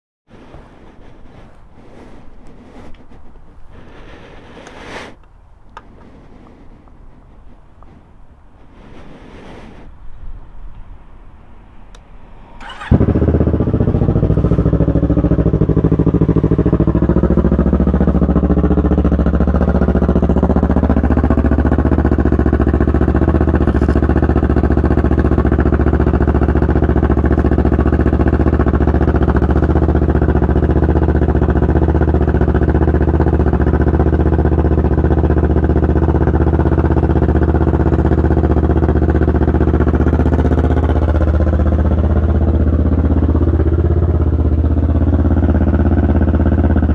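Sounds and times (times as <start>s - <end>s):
motorcycle engine idling: 12.6s - 46.9s.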